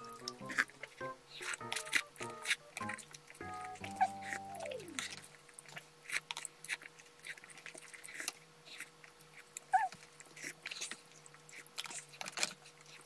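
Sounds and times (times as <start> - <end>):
noodles slurped and chewed: 0.0 - 13.0.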